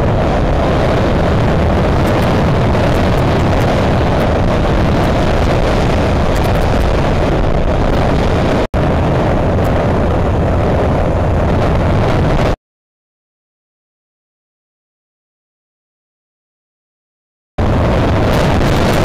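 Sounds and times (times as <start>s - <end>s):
motorcycle engine running: 0.0s - 12.0s
road noise: 0.0s - 12.6s, 17.6s - 19.0s
wind noise: 0.0s - 12.6s, 17.6s - 19.0s.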